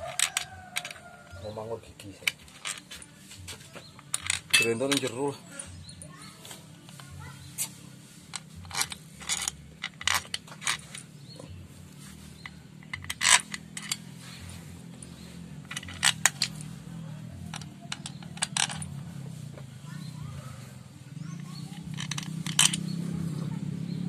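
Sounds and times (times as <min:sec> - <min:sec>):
metal tools clinking: 0:00.0 - 0:01.5, 0:02.1 - 0:03.1, 0:03.8 - 0:06.3, 0:08.3 - 0:11.6, 0:12.2 - 0:19.2, 0:21.4 - 0:23.2.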